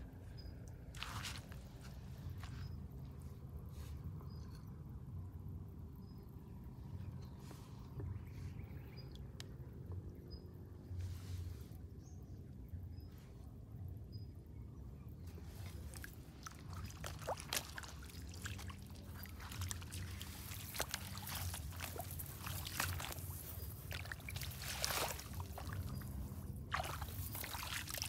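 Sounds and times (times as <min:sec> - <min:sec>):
footsteps splashing in stream: 0:00.9 - 0:01.9, 0:15.6 - 0:28.0.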